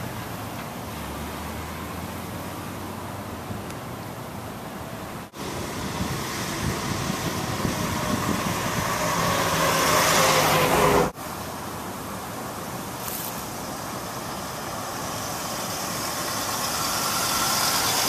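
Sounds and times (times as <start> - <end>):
quieter steady car sound: 0.0 - 18.0
car driving toward microphone: 5.1 - 11.2, 13.7 - 18.0.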